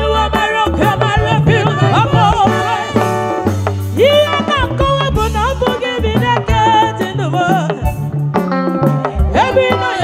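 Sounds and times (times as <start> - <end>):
women singing together: 0.0 - 3.1
bass line: 0.0 - 10.0
drums: 0.0 - 10.0.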